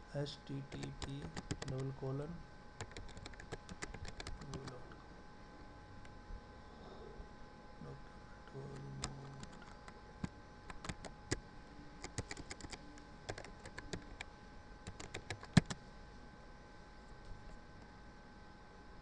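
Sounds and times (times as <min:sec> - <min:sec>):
computer keyboard typing: 0:00.7 - 0:02.0, 0:02.8 - 0:04.9, 0:08.7 - 0:11.4, 0:12.0 - 0:15.8.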